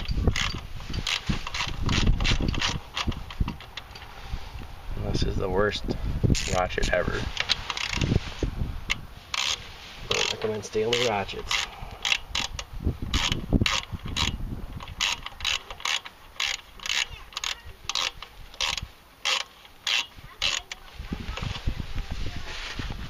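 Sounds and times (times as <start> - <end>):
ratchet pawl clicking: 0.0 - 3.9, 7.4 - 8.1, 8.9 - 20.8.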